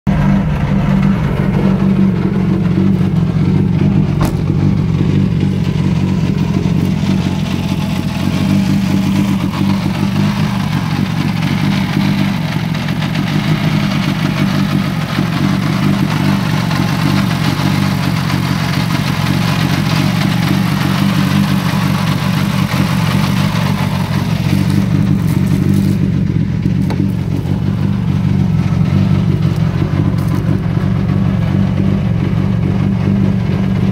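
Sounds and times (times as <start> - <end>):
car engine idling: 0.0 - 33.9.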